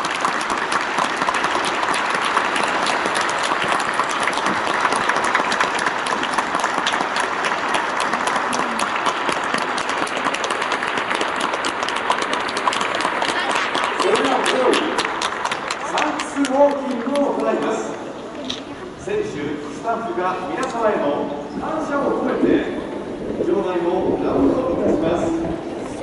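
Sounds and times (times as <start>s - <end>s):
crowd applauding: 0.0s - 18.0s.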